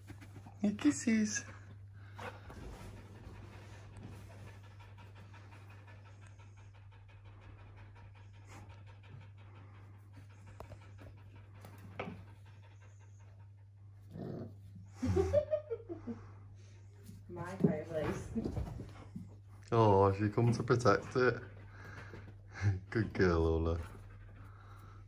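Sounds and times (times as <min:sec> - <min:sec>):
dog panting: 0:00.0 - 0:25.0.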